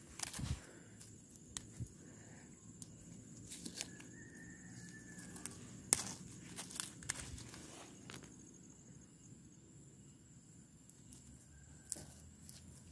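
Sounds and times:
leaves rustling: 0:00.0 - 0:08.4.

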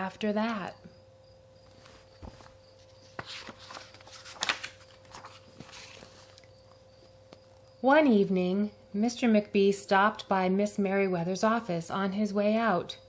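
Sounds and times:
book pages turning: 0:01.7 - 0:06.5.

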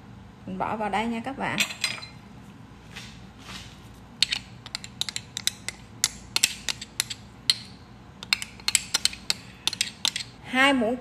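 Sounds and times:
metal spoon clicking on metal: 0:04.2 - 0:10.4.

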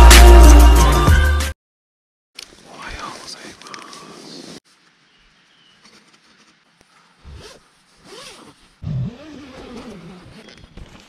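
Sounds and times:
tent zipper pulled open: 0:07.2 - 0:11.0.

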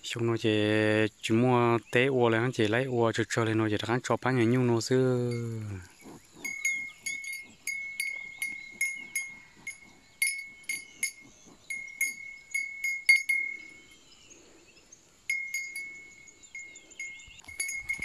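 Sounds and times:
cow bell clanking: 0:05.2 - 0:14.0, 0:15.3 - 0:18.0.

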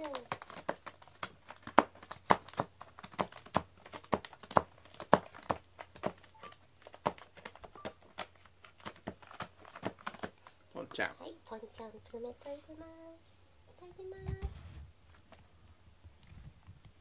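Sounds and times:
plastic wrapping crinkling: 0:00.0 - 0:10.6.

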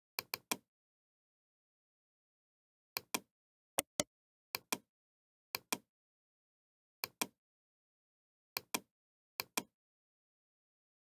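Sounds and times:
computer mouse button clicking: 0:03.8 - 0:04.0.

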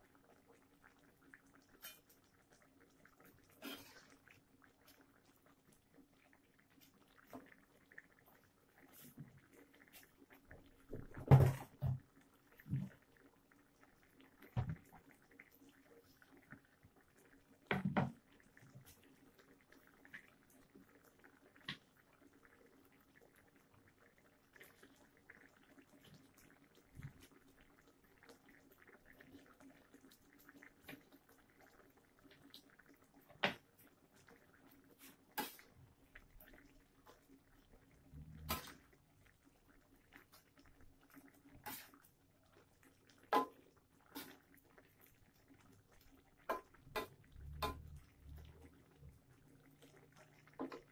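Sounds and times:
food simmering and bubbling: 0:00.0 - 0:50.9.

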